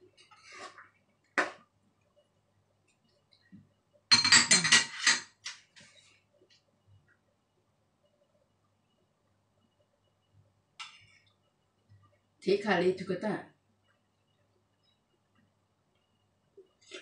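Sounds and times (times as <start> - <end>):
ladle clinking on ceramic dish: 4.1 - 5.3.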